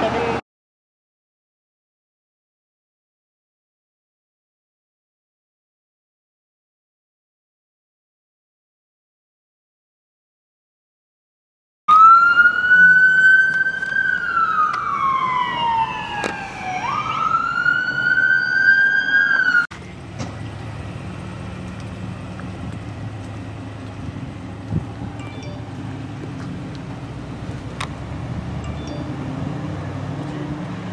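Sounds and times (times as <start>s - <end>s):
emergency siren wailing: 11.9s - 30.9s
steady low rumble: 19.7s - 28.6s.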